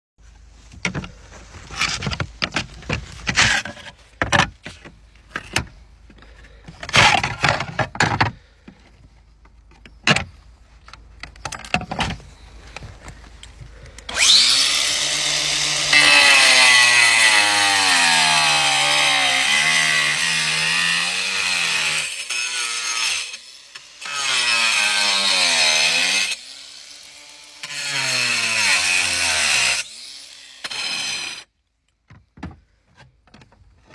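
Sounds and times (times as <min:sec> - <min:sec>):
angle grinder cutting slate: 0:14.1 - 0:31.5.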